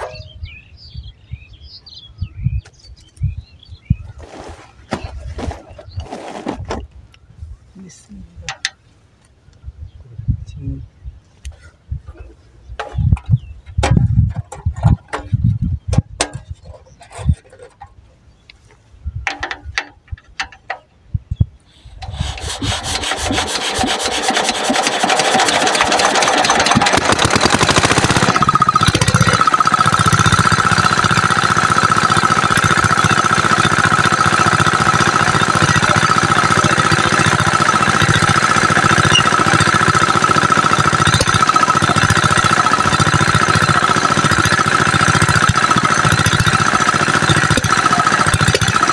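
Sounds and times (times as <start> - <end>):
hand crank clanks and knocks: 12.8 - 18.0, 19.2 - 20.9
diesel engine running: 22.0 - 48.9.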